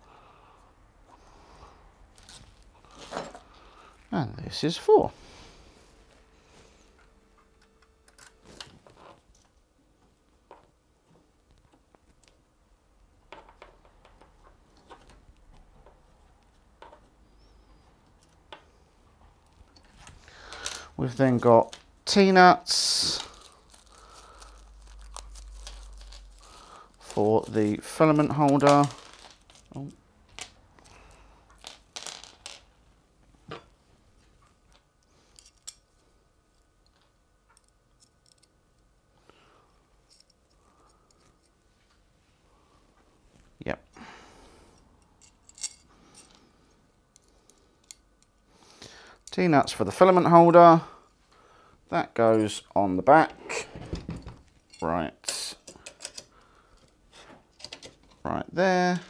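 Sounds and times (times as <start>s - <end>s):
small metal parts clinking: 19.5s - 21.0s, 23.1s - 32.7s, 34.7s - 35.9s, 36.6s - 38.6s, 40.0s - 41.5s, 45.0s - 46.4s, 54.5s - 58.2s.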